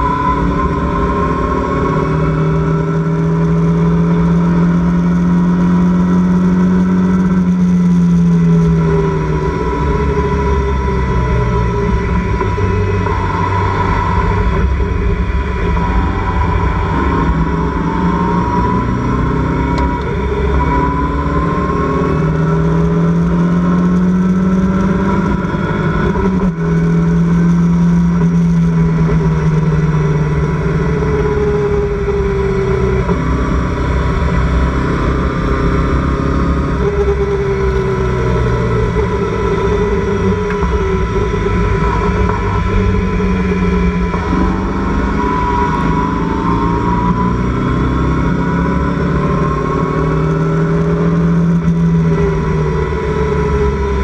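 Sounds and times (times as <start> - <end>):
race car engine revving: 0.0 - 54.0.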